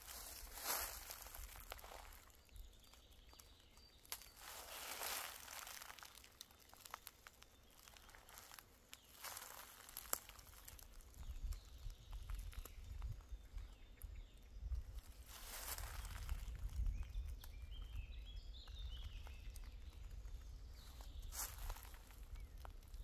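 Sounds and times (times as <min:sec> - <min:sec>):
soft rustling: 0:00.0 - 0:02.3
small crackles and clicks: 0:00.6 - 0:13.7.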